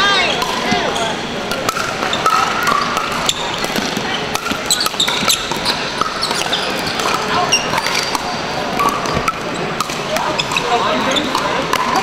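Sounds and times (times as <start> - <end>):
murmur of voices: 0.0 - 12.0
paddles hitting plastic ball: 1.5 - 10.6.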